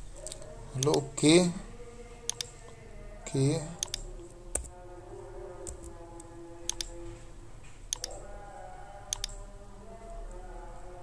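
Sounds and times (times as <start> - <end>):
faint steady hum: 0.0 - 11.0
computer mouse clicking: 0.3 - 1.0, 2.3 - 2.5, 3.8 - 4.7, 6.7 - 7.0, 7.9 - 8.2, 9.1 - 9.4.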